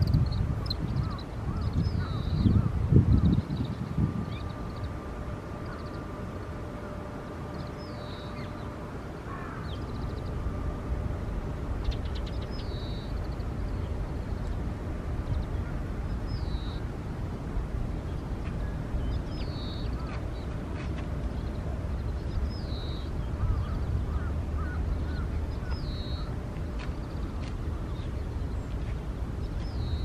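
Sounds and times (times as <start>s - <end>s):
rapid bird trills: 0.0s - 5.0s, 5.6s - 6.1s, 11.8s - 14.6s, 15.2s - 16.9s, 18.1s - 20.6s, 21.3s - 28.8s
sparrows chirping: 0.0s - 6.2s, 7.4s - 10.4s, 11.8s - 14.6s, 15.2s - 16.9s, 18.0s - 30.0s
faint steady hum: 0.0s - 30.0s
low outdoor rumble: 0.0s - 30.0s.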